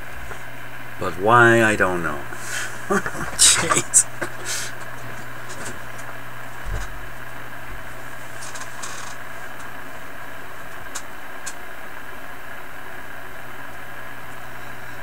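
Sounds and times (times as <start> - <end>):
radio receiver hiss and hum: 0.0 - 15.0.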